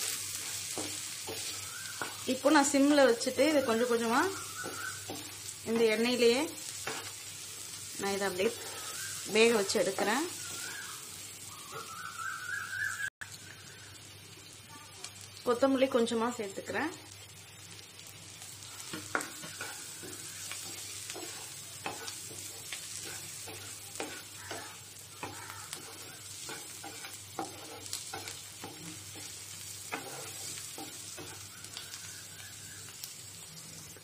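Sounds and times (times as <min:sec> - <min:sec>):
spatula scraping and knocking pan: 0:00.0 - 0:07.3, 0:18.8 - 0:31.6
prawns sizzling in oil: 0:00.0 - 0:34.0.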